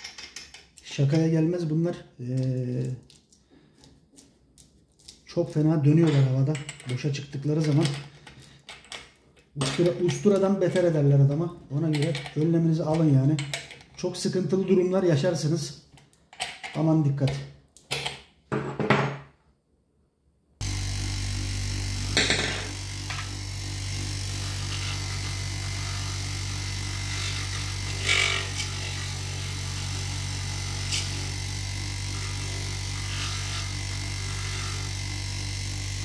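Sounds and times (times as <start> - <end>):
bench grinder humming: 20.6 - 36.0.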